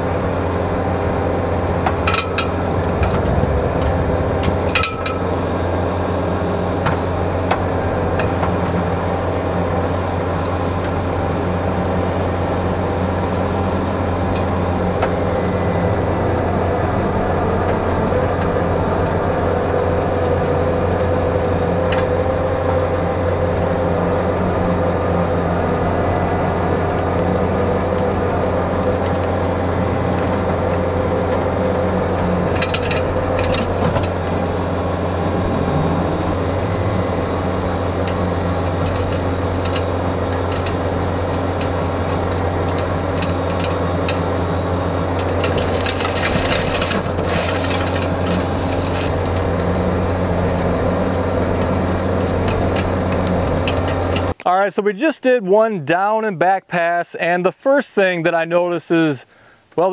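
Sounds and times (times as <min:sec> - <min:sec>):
diesel engine running under load: 0:00.0 - 0:54.4
power rake churning soil and stones: 0:00.0 - 0:54.4
sharp clicks and rattles: 0:00.9 - 0:05.8, 0:17.2 - 0:44.5, 0:45.1 - 0:49.5.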